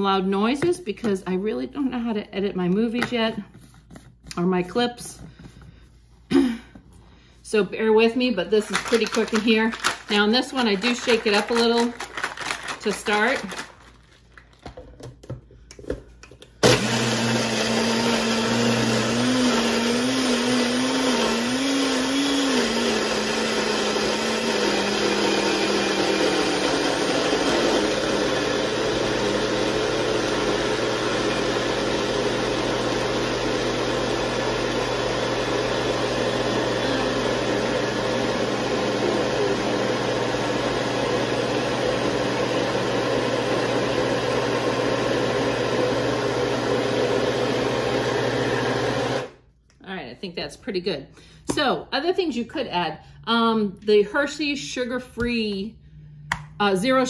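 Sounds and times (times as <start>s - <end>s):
blender blending ice: 8.6s - 14.1s, 16.6s - 49.4s.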